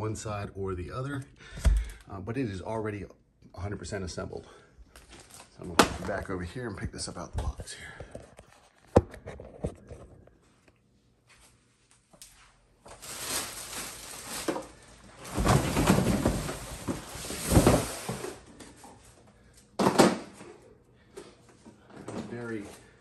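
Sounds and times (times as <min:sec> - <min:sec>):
cardboard and plastic rustling: 0:04.9 - 0:06.3, 0:12.8 - 0:20.6.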